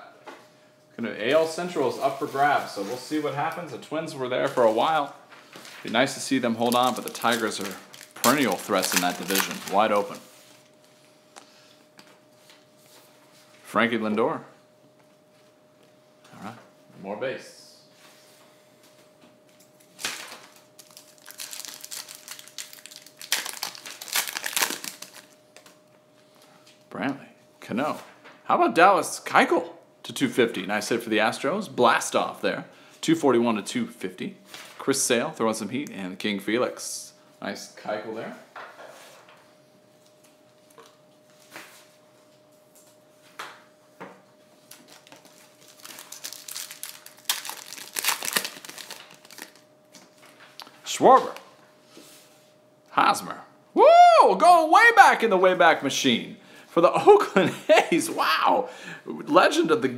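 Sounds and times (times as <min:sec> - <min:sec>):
foil wrapper crinkling: 0:05.6 - 0:10.8, 0:20.0 - 0:25.8, 0:44.6 - 0:49.7.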